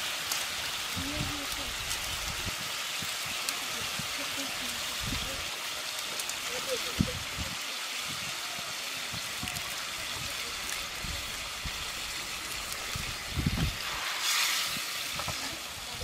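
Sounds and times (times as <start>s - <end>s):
fish sizzling in oily gravy: 0.0s - 16.0s.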